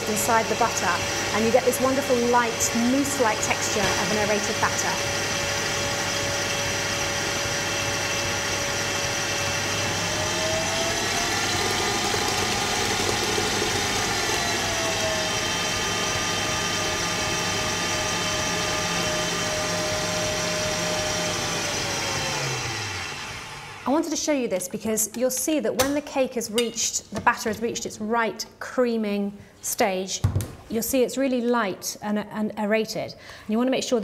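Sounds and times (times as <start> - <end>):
electric stand mixer whining: 0.0 - 23.9.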